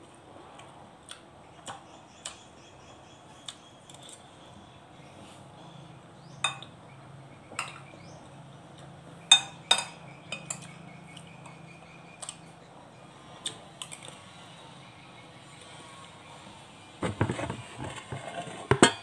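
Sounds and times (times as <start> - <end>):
metal spoon clinking on a dish: 6.4 - 6.7, 9.3 - 10.7.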